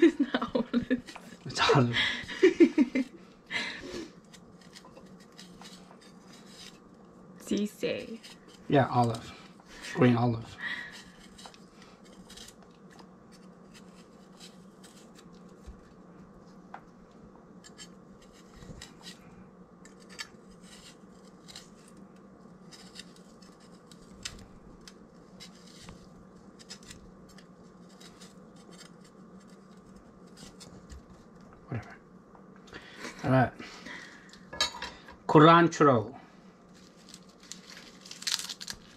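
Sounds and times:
knife slicing olive: 4.2 - 6.9, 10.9 - 15.8, 17.6 - 31.3.

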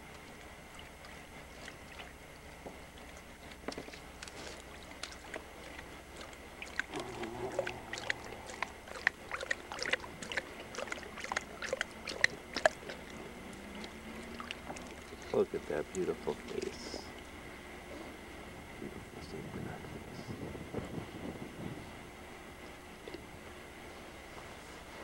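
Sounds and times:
dog lapping water: 0.0 - 18.2.

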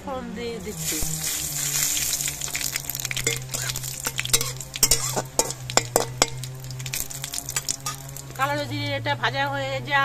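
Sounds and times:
seeds sizzling in hot oil: 0.6 - 8.6
oil popping: 0.6 - 8.7
metal spatula clicking on pan: 2.6 - 8.2.

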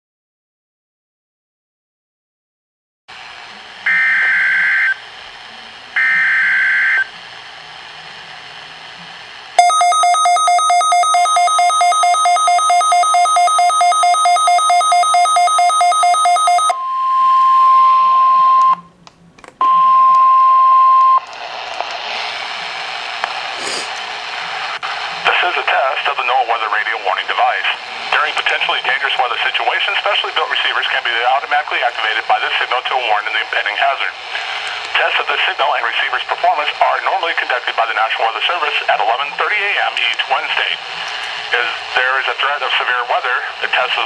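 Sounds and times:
loud pulsing alert beep: 9.6 - 18.8
steady warning alarm tone: 9.6 - 18.8
faint radio static: 21.4 - 44.0.

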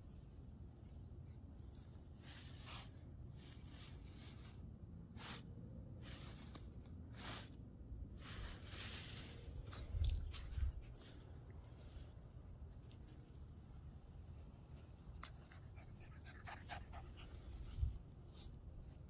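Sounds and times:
faint rustles in grass: 0.0 - 19.0
fur brushing against phone: 1.6 - 12.4.

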